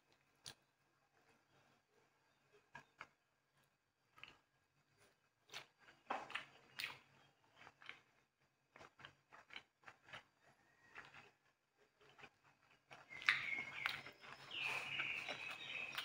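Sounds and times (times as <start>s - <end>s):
mouth clicks and crackles: 0.1s - 0.7s, 5.5s - 16.0s
person chewing food: 0.1s - 16.0s.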